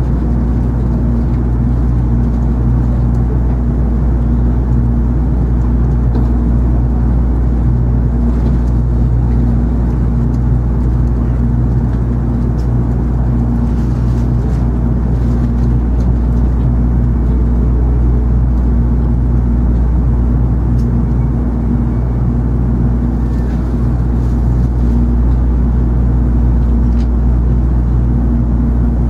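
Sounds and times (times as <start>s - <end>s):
train interior hum: 0.0s - 29.0s.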